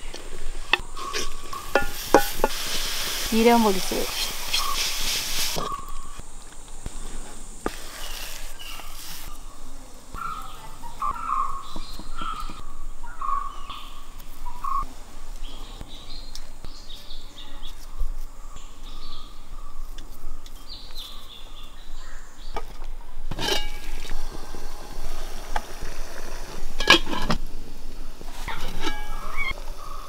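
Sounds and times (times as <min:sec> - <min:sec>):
birds chirping: 0:00.0 - 0:02.7, 0:03.3 - 0:06.2, 0:06.9 - 0:23.1, 0:28.5 - 0:30.0.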